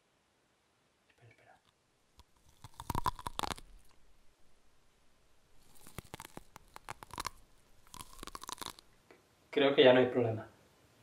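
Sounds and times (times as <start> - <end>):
cat crunching and chewing: 2.2 - 9.0.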